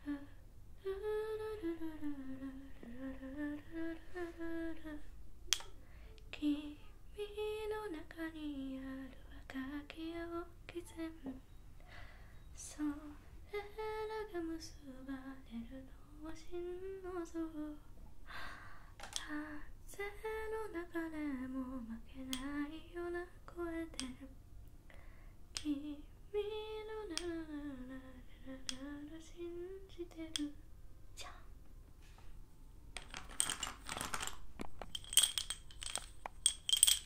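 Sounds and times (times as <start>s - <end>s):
girl humming a melody: 0.0s - 5.2s, 12.6s - 17.9s, 25.6s - 30.6s
chalk sticks clicking together: 33.0s - 37.0s.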